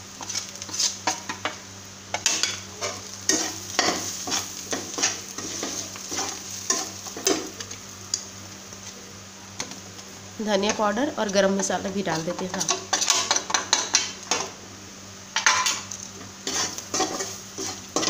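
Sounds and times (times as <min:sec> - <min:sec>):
masala sizzling in hot oil: 0:00.0 - 0:18.0
steel spatula scraping a pan: 0:12.5 - 0:14.0, 0:16.4 - 0:18.0.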